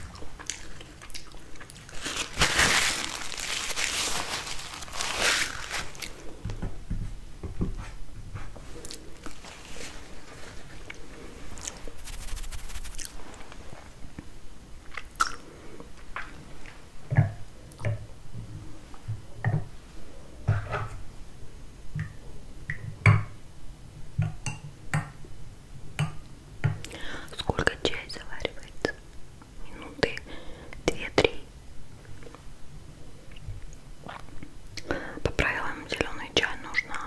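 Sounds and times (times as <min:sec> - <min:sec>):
chewing with wet mouth clicks: 0:00.1 - 0:02.0
paper napkin rustling: 0:01.9 - 0:06.3, 0:09.3 - 0:10.9, 0:11.5 - 0:14.0.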